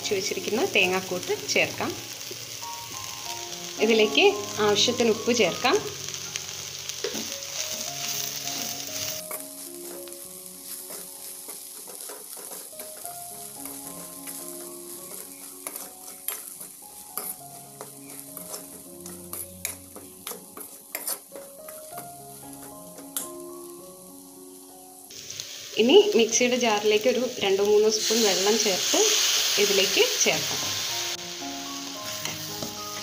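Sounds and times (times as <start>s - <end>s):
light sizzle: 0.0s - 33.0s
metal spatula scraping steel pan: 10.6s - 23.2s.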